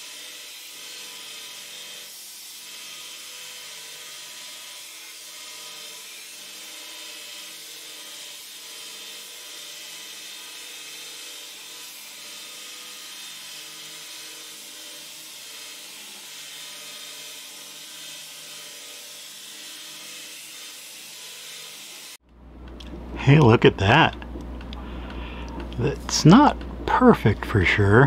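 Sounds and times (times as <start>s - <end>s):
belt grinder grinding knife blade: 0.0s - 22.2s.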